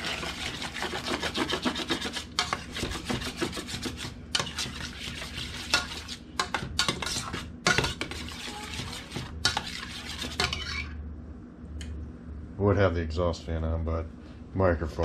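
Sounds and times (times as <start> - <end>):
metal spoon scraping saucepan: 0.0 - 11.0.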